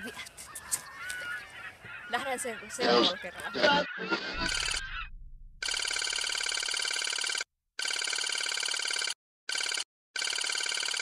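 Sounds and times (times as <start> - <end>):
electronic ringing tone: 4.3 - 5.0, 5.6 - 11.0.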